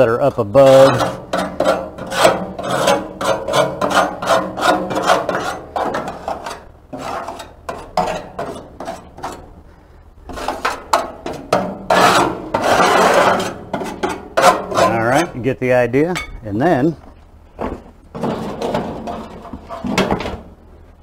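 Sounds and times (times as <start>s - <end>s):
grill scraper scraping metal: 0.6s - 9.6s, 10.3s - 15.4s.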